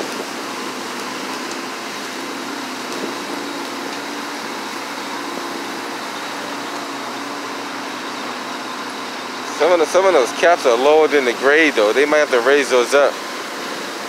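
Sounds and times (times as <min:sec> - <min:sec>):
construction machinery humming: 0:00.0 - 0:14.0.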